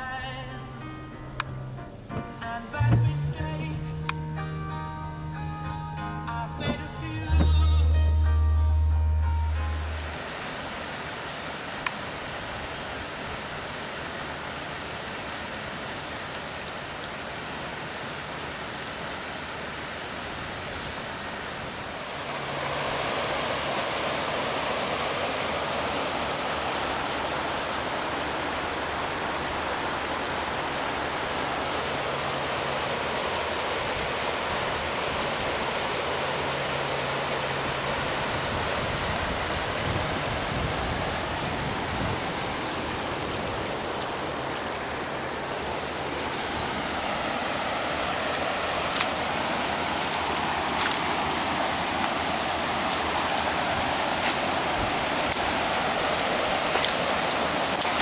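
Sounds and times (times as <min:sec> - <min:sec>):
floodwater rushing: 0:00.0 - 0:58.0
low rumble: 0:00.6 - 0:10.3.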